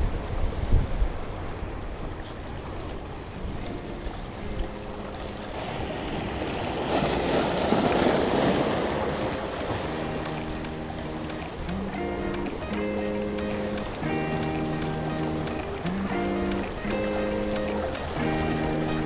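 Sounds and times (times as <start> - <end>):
small waves breaking on rocks: 0.0 - 11.9.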